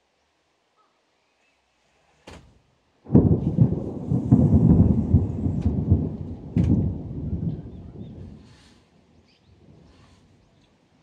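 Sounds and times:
thunder clap: 3.1 - 8.8
low thunder rumble: 3.1 - 11.0.

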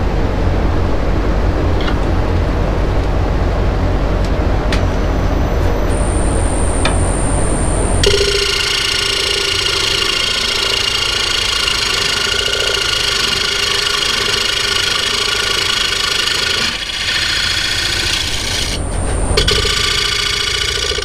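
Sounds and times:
power tool motor whining: 5.9 - 21.0.

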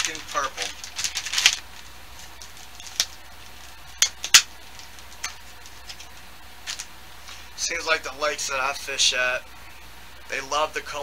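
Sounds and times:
plastic pack clicking and crinkling: 0.0 - 6.9.

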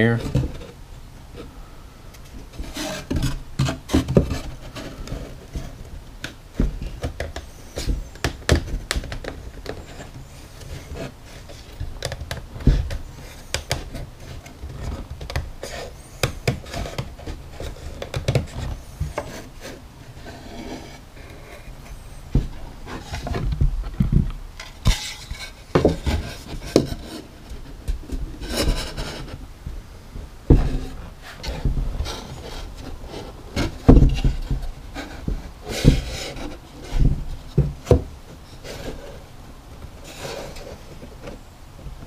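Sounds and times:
wood scraping on wood: 0.0 - 41.4.

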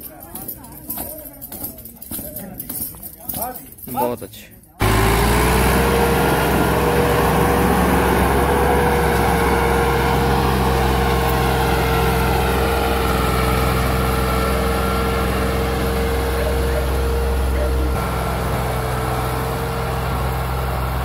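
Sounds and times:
tractor engine running under load: 4.8 - 21.0.

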